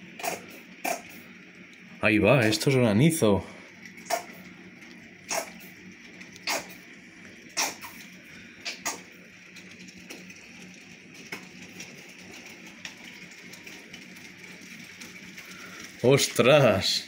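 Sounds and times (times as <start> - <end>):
hail hissing on roof: 0.0 - 17.0
hailstones clicking nearby: 3.8 - 17.0.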